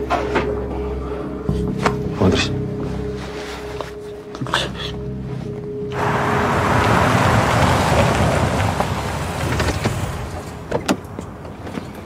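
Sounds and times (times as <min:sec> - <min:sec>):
car engine and tyre noise: 0:03.1 - 0:12.0.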